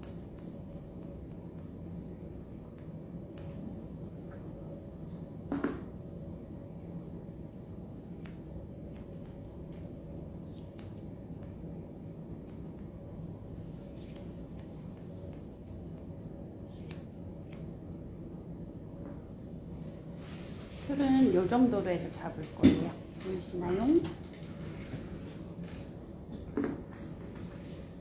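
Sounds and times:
scissors snipping hair: 0.0s - 4.3s, 7.2s - 13.0s, 13.9s - 17.8s
low room hum: 0.0s - 28.0s.

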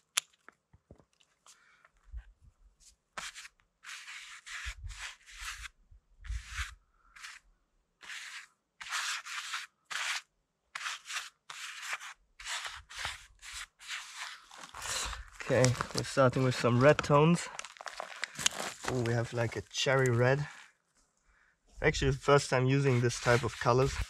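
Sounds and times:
scratchy rubbing and scraping: 2.8s - 20.8s, 21.9s - 24.0s.

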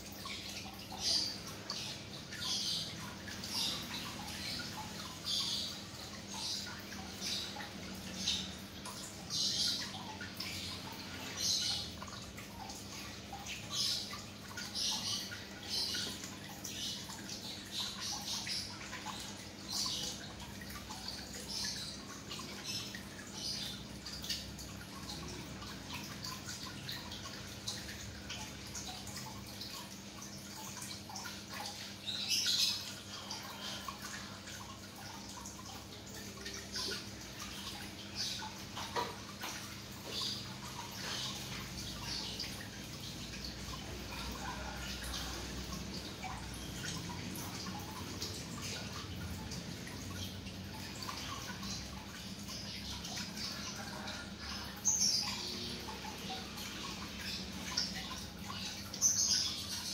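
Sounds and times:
water dripping and trickling: 0.0s - 59.9s.

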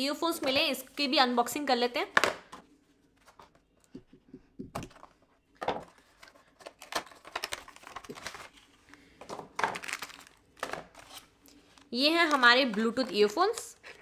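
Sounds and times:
plastic packaging rustling: 4.9s - 14.0s.

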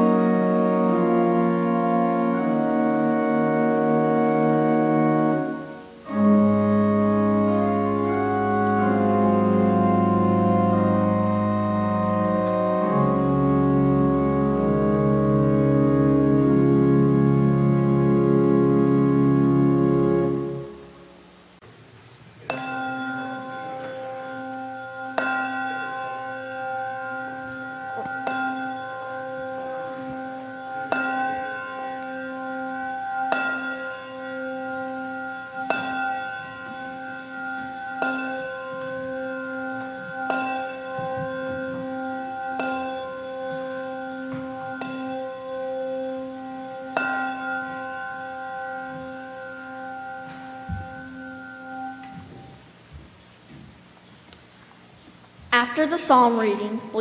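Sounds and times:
handbells ringing: 22.5s - 52.5s.

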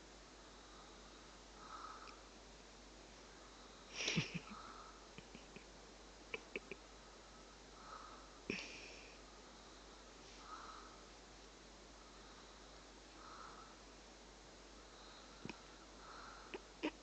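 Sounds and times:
person breathing slowly: 0.4s - 2.4s, 3.2s - 5.2s, 7.0s - 14.0s, 14.7s - 17.0s
sharp breath noises: 0.4s - 2.4s, 7.0s - 16.9s.

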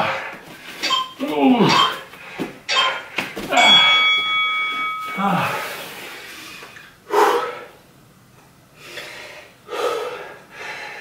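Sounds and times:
man breathing hard: 5.2s - 7.8s, 8.8s - 11.0s.

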